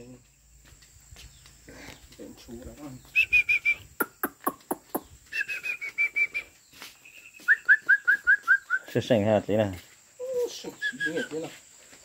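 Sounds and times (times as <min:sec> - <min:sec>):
bird whistling notes: 0:03.0 - 0:09.0, 0:10.2 - 0:11.5.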